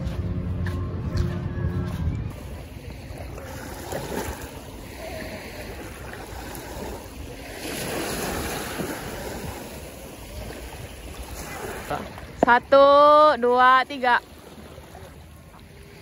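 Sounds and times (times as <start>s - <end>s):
waves washing onto beach: 2.3s - 16.0s.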